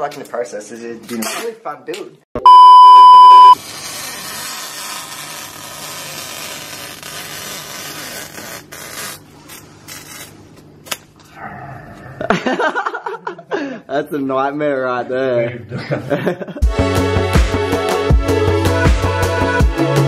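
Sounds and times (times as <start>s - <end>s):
loud steady test tone: 2.5s - 3.6s.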